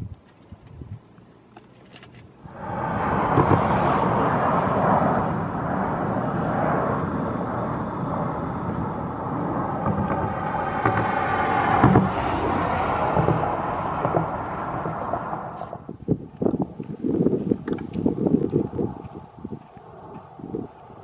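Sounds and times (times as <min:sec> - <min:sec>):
jet engines roaring: 0:02.4 - 0:15.9
wind thumps on microphone: 0:02.4 - 0:21.0.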